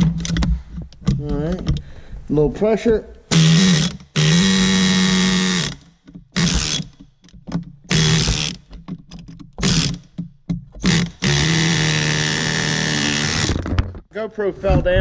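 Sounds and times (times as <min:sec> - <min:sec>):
pneumatic air chisel hammering: 0:03.3 - 0:07.1, 0:07.9 - 0:08.7, 0:09.6 - 0:13.6.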